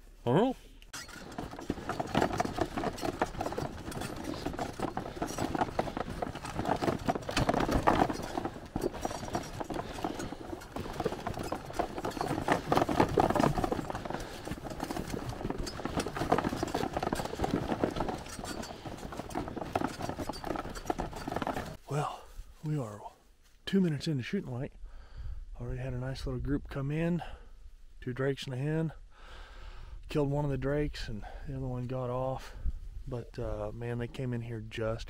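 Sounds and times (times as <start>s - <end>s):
cart rattling over grass: 1.0s - 21.8s
footsteps on grassy ground: 1.2s - 23.7s.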